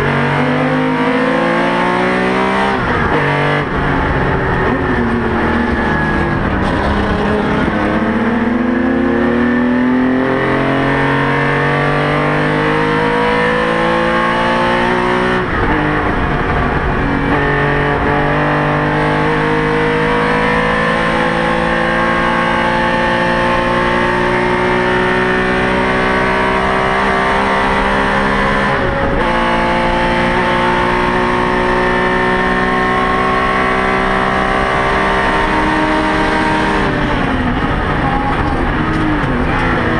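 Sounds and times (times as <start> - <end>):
racing engine accelerating: 0.0 - 39.9.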